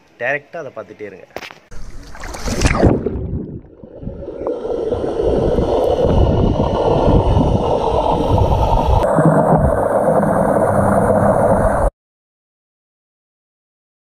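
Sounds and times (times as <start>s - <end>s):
splash into water: 1.8s - 3.7s
muffled underwater gurgling and rumbling: 2.6s - 11.9s.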